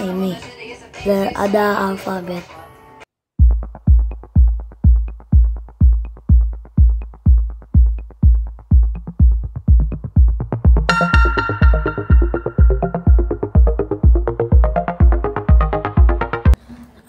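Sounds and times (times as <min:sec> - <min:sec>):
bass kick drum: 0:03.4 - 0:16.6
light ticking beat: 0:03.4 - 0:16.6
synth chords: 0:08.7 - 0:16.6.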